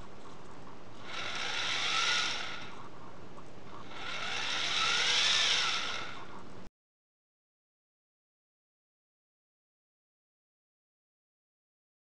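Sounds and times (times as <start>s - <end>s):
small servo whirring: 1.0s - 2.9s, 3.7s - 6.5s.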